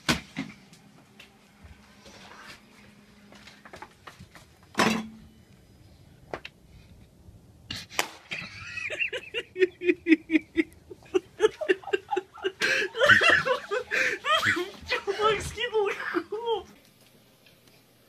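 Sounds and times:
person laughing: 0:08.3 - 0:16.6.

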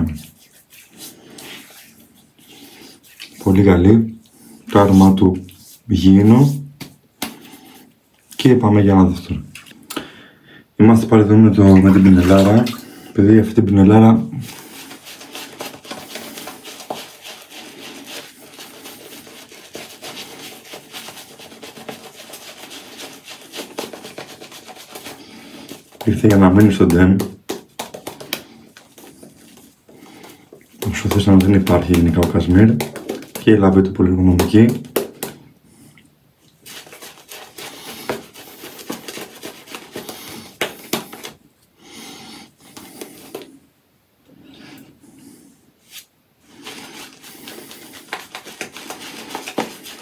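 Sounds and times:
shaving brush rubbing through lather: 0:00.0 - 0:03.7, 0:11.3 - 0:13.1, 0:14.4 - 0:35.4, 0:36.6 - 0:41.4, 0:42.6 - 0:43.6, 0:45.8 - 0:50.0.

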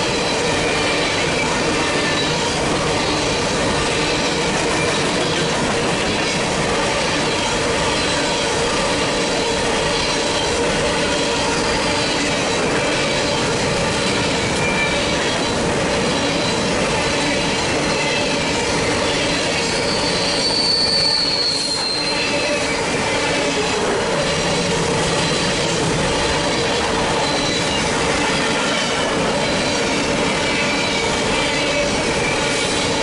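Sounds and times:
freight train rumbling past: 0:00.0 - 0:33.0
wheel squeal: 0:19.0 - 0:23.7, 0:27.2 - 0:27.9.

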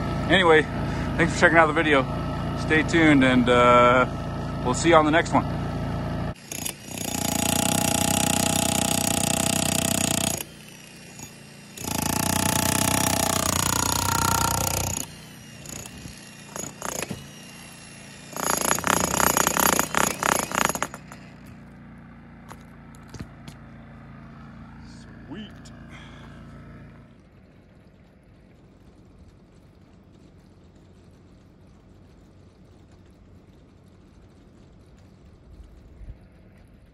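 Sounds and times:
generator humming: 0:00.0 - 0:36.9
electric breaker hammer: 0:06.3 - 0:21.6.

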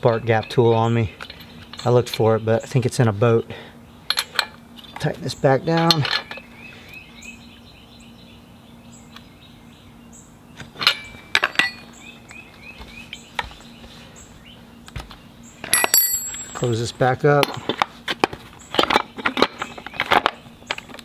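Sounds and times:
metal wrench clinking: 0:10.8 - 0:11.9, 0:15.6 - 0:16.7.

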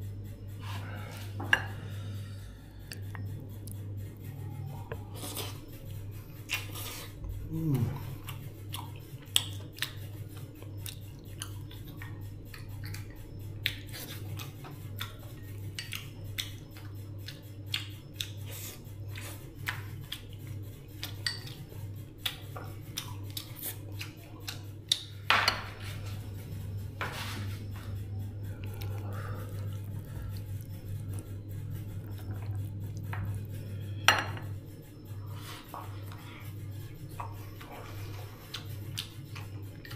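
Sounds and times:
low hum: 0:00.0 - 0:18.1, 0:18.8 - 0:39.9
utensils and dishes clinking: 0:21.0 - 0:21.7, 0:32.3 - 0:34.7.

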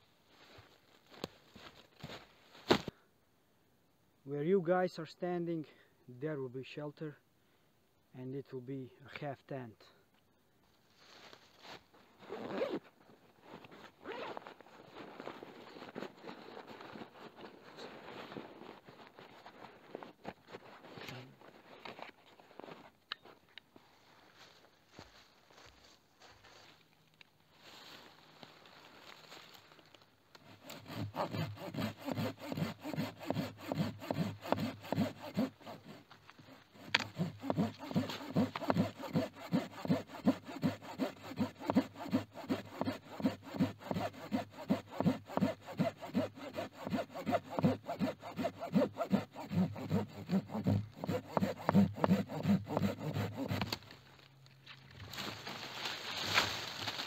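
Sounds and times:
hand saw cutting wood: 0:30.4 - 0:53.9.

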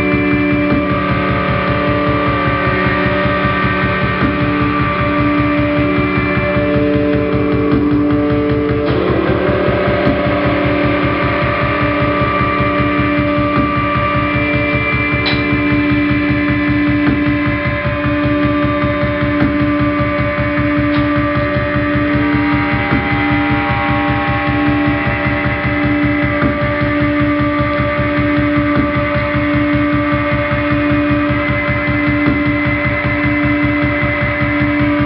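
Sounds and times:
low pulsing throb: 0:00.0 - 0:35.0
sustained drone hum: 0:00.0 - 0:35.0
higher shifting tones: 0:20.9 - 0:28.0.

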